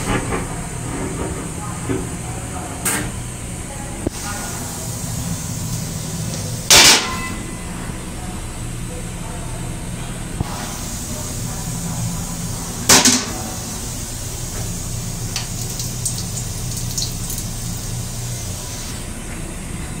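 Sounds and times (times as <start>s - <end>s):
railcar low hum: 0.0s - 15.7s.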